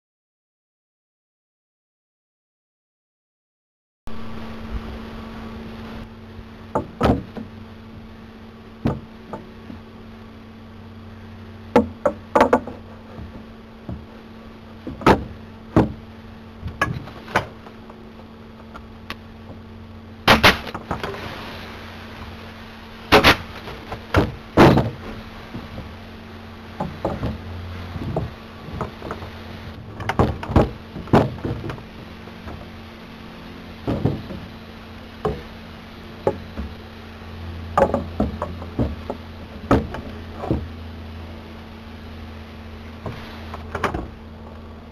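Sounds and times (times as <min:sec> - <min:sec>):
low hum: 0:04.1 - 0:44.9
wooden knocks and clacks: 0:06.7 - 0:07.5, 0:08.8 - 0:09.8, 0:11.7 - 0:14.1, 0:14.8 - 0:16.0, 0:16.7 - 0:17.8, 0:23.9 - 0:25.9, 0:26.8 - 0:29.3, 0:29.9 - 0:32.7, 0:33.9 - 0:34.5, 0:35.2 - 0:35.5, 0:36.2 - 0:36.8, 0:37.8 - 0:40.8.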